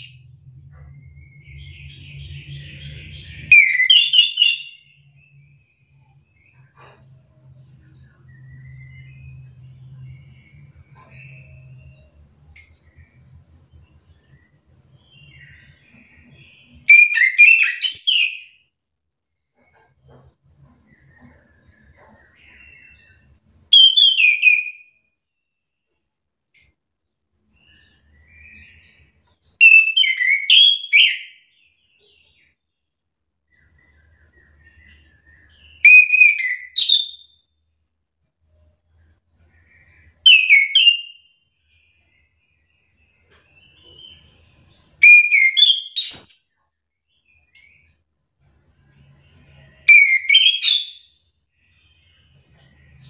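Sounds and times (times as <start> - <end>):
thrush singing whistled notes: 0.0 - 7.0, 7.8 - 18.7, 20.8 - 25.0, 27.5 - 32.6, 33.6 - 37.4, 39.4 - 46.6, 49.0 - 53.0.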